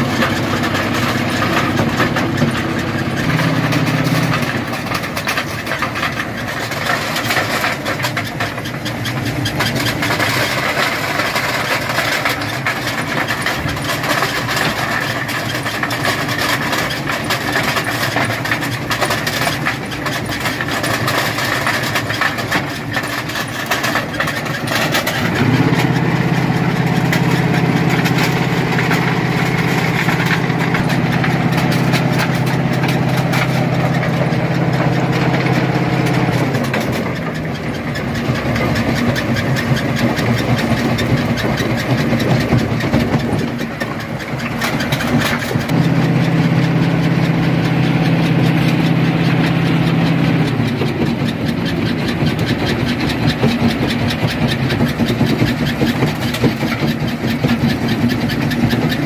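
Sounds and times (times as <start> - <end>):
deep engine note: 25.2 - 37.8, 45.7 - 55.4.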